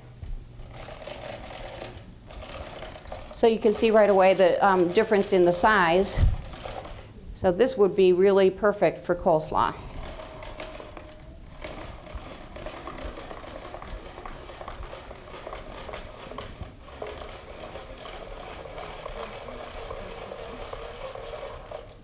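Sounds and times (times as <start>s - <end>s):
spiralizer crunching and clicking: 0.6s - 7.1s, 9.8s - 22.0s.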